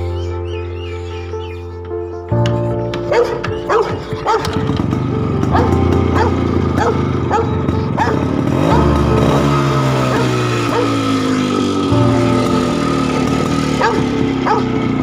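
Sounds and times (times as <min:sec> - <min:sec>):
background music: 0:00.0 - 0:15.0
dog barking: 0:02.9 - 0:04.6, 0:05.5 - 0:08.2, 0:10.1 - 0:11.0, 0:13.8 - 0:14.8.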